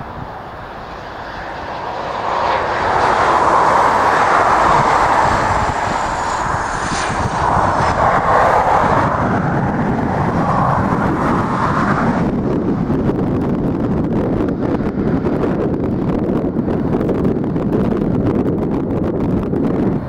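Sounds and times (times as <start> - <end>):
high whine falling in pitch: 0.0 - 14.1
jet airliner passing low: 0.0 - 20.0.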